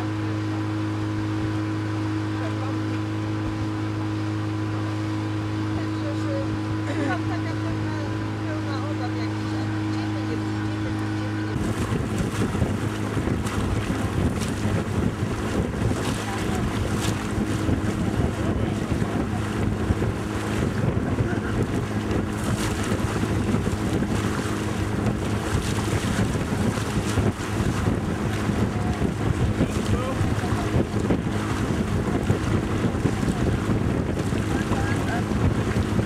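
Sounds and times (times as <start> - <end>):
low motor hum: 0.0 - 36.0
water rushing along hull: 0.0 - 36.0
wind buffeting microphone: 9.0 - 36.0.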